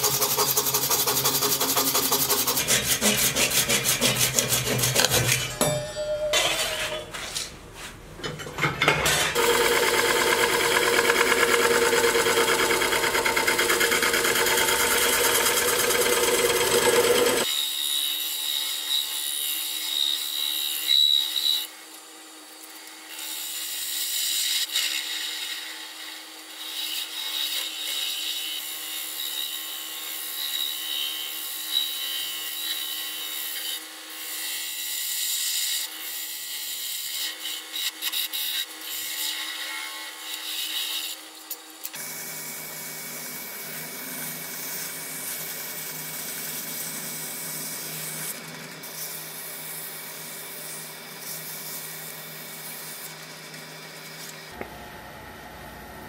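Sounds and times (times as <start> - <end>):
turning tool scraping wood: 0.0 - 5.5, 9.3 - 17.5
lathe hum: 9.4 - 17.4.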